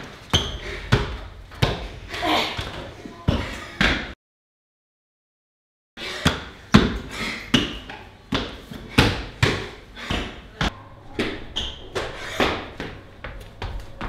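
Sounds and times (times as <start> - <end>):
footsteps running up stairs: 11.2 - 14.0.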